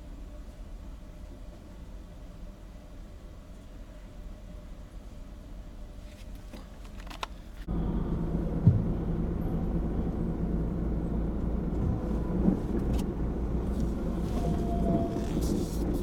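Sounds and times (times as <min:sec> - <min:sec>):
low rumble of engines: 0:00.0 - 0:16.0
brief low thump: 0:08.5 - 0:09.2.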